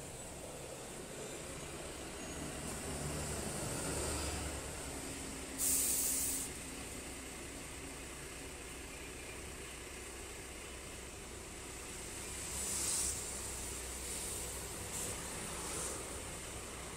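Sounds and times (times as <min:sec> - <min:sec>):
bus engine rumble: 0:00.0 - 0:16.9
air brakes hiss: 0:05.5 - 0:06.6, 0:12.6 - 0:16.2.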